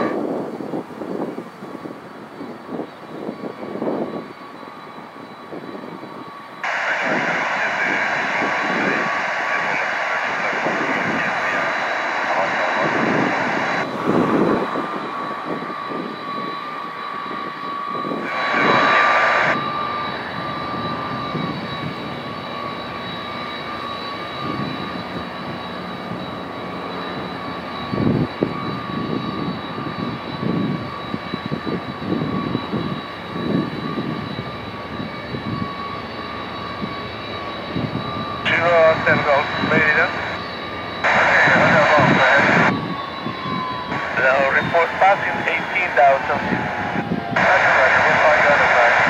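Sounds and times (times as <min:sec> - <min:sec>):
jet turbine whine: 0:00.0 - 0:49.0
rushing rumble: 0:06.6 - 0:22.6, 0:37.7 - 0:49.0.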